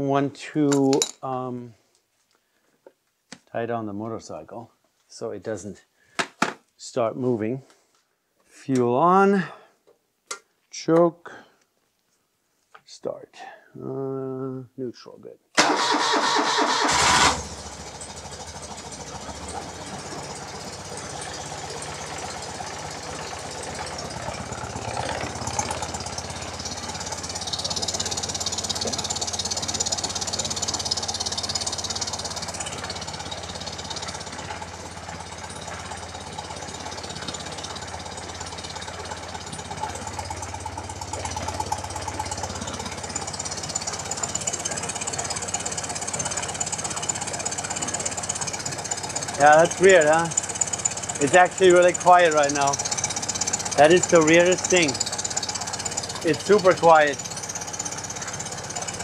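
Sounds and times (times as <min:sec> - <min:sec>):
motorcycle engine starting and idling: 0:15.6 - 0:59.0.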